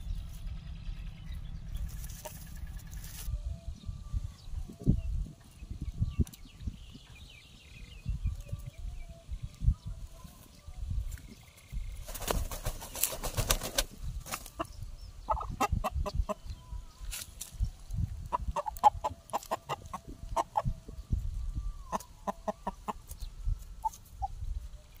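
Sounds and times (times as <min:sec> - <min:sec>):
chicken clucking: 0:01.9 - 0:03.2, 0:14.3 - 0:16.6, 0:18.2 - 0:21.0, 0:21.8 - 0:24.4
wings flapping: 0:12.0 - 0:14.7.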